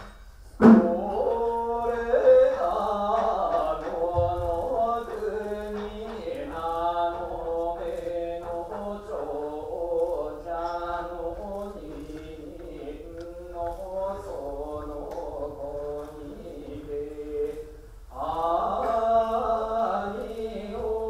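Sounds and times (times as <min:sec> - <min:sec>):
man chanting unaccompanied: 0:00.6 - 0:21.0.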